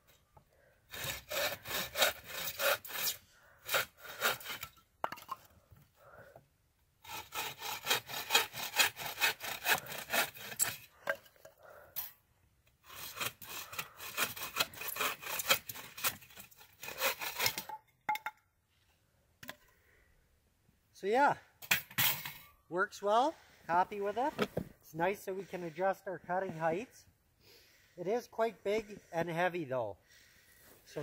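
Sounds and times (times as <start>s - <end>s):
bow saw cutting wood: 0.9s - 4.8s, 7.0s - 11.7s, 12.8s - 17.7s.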